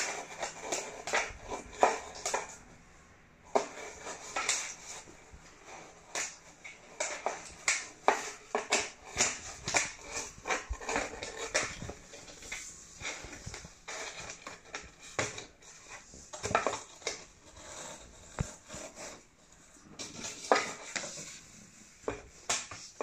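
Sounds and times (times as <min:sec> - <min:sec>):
cat scratching cardboard box: 0:00.0 - 0:23.0.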